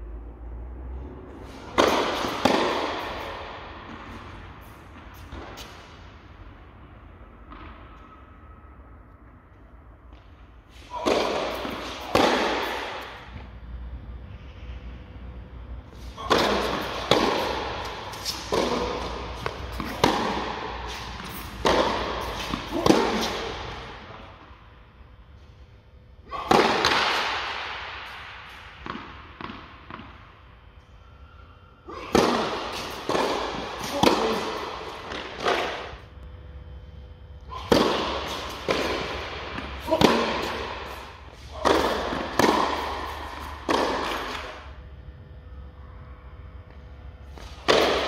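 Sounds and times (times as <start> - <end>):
rackets hitting tennis ball: 1.2 - 6.4, 9.6 - 14.2, 16.0 - 24.7, 26.3 - 30.6, 31.9 - 36.1, 37.5 - 44.9, 46.7 - 48.0
tennis ball bouncing on court: 1.4 - 5.8, 11.0 - 13.5, 16.3 - 23.8, 26.4 - 30.3, 32.1 - 36.0, 37.6 - 44.8, 47.3 - 48.0.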